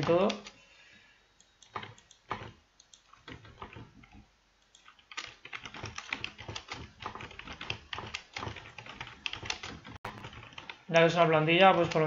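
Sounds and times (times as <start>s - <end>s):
typing on keyboard: 1.6s - 10.9s, 11.8s - 12.0s.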